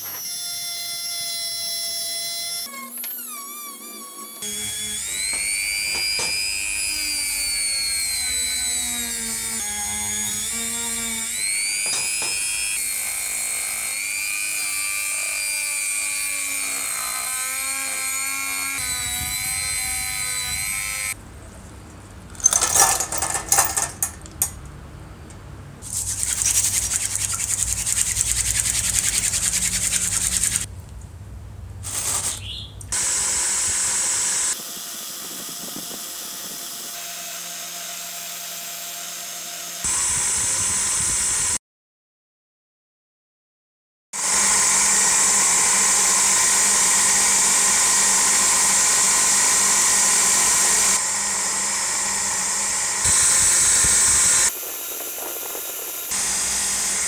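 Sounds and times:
rotary tool whining on metal: 0.0 - 21.2, 22.3 - 24.6, 26.3 - 30.7, 44.2 - 57.0
harsh grinding bursts: 1.3 - 21.2, 25.8 - 30.7.

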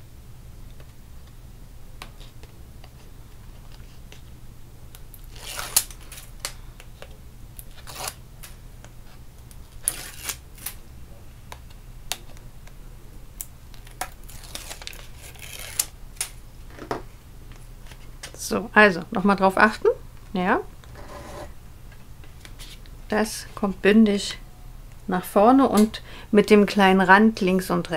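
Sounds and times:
tape liner ripping: 5.2 - 6.0, 7.7 - 8.2, 9.8 - 10.8, 14.0 - 16.3
paper and card rustling: 13.8 - 15.9.

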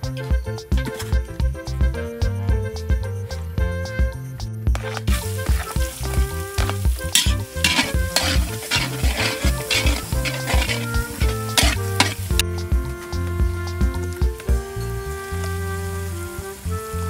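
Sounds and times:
background music: 0.0 - 17.0
metal spatula scraping wok: 4.8 - 12.4
onion sizzling in oil: 4.8 - 12.5, 14.7 - 17.0.

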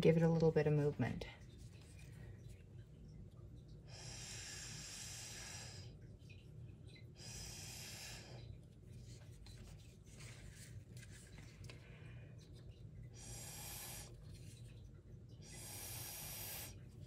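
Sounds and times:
breath blown through straw: 15.5 - 16.8.

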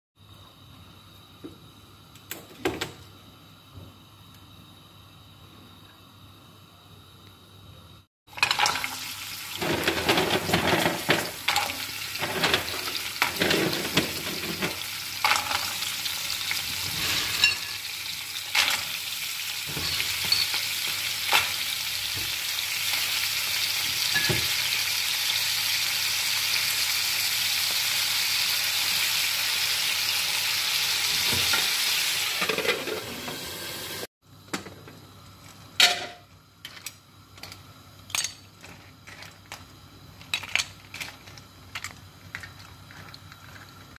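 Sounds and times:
shells clattering in pan: 8.3 - 15.9, 19.7 - 21.6, 35.8 - 39.6, 40.2 - 43.9
shellfish sizzling in oil: 8.3 - 34.1.

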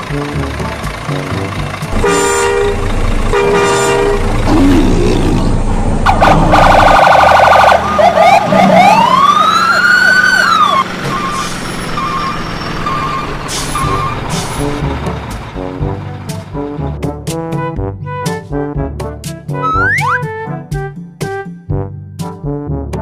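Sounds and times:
vehicle horn honking: 2.0 - 4.3
siren yelping and wailing: 6.0 - 14.1, 19.6 - 20.3.

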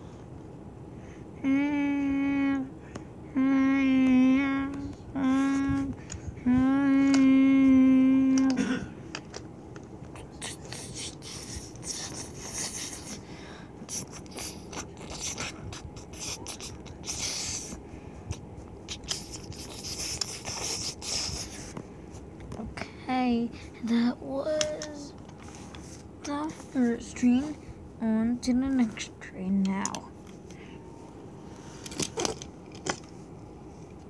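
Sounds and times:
child humming a long note: 1.4 - 2.7, 3.3 - 8.8.

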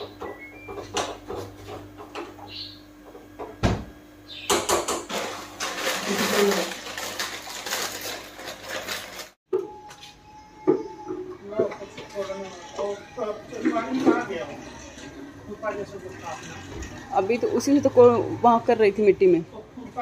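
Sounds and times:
plastic packet crinkling: 5.1 - 9.4.

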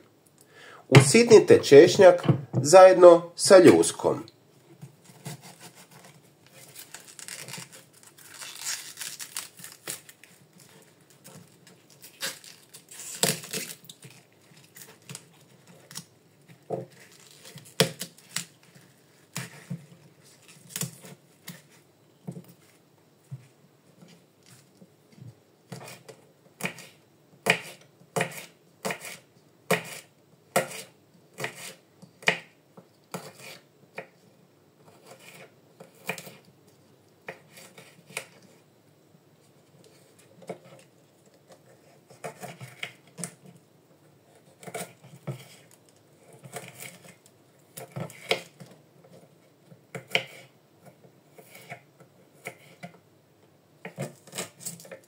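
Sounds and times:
knife chopping on cutting board: 26.6 - 32.5.

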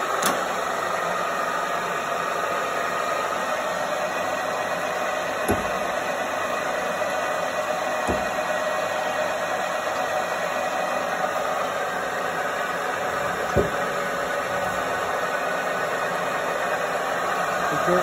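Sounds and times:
drilling machine mechanical hum: 0.0 - 18.0.

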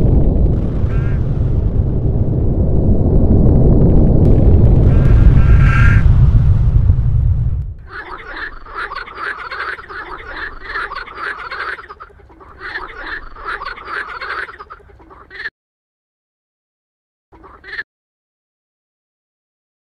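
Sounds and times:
frogs croaking: 7.8 - 15.5, 17.4 - 17.8.

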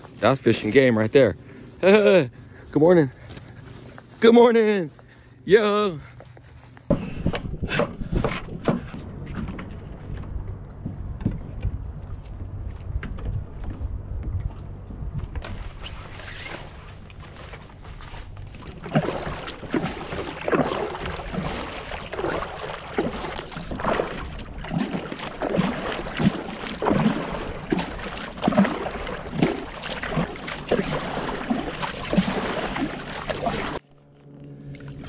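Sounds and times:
paddle splashing into water: 15.4 - 33.8.

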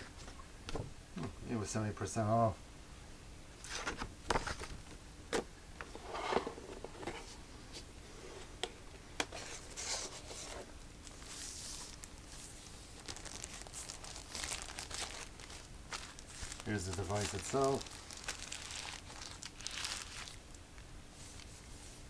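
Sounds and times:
plastic wrap crinkling: 11.0 - 21.6.

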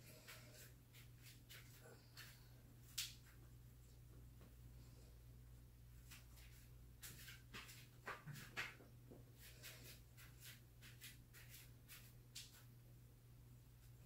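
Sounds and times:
scuffs and rustles on yoga mat: 0.0 - 2.6, 6.0 - 12.7
low room hum: 0.0 - 14.0.

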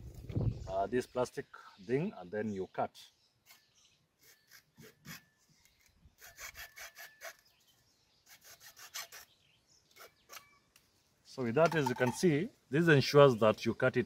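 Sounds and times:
hacksaw sawing plastic pipe: 4.2 - 5.2, 6.2 - 7.5, 8.3 - 9.3.

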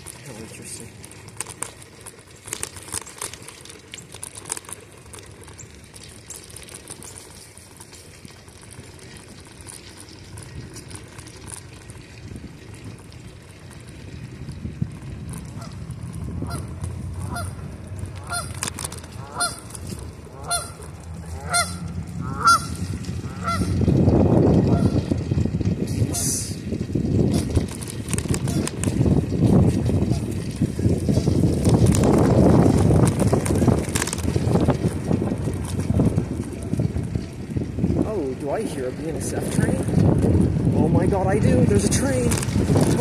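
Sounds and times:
bicycle rolling noise: 0.0 - 43.0
geese honking: 16.4 - 23.8, 24.7 - 25.0, 28.4 - 28.7.

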